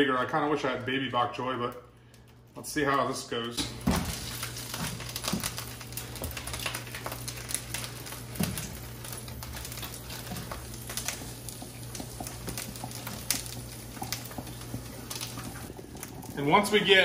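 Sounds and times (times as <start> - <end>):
low steady hum: 0.0 - 17.0
leaves crackling and sizzling in a wok: 3.6 - 15.7.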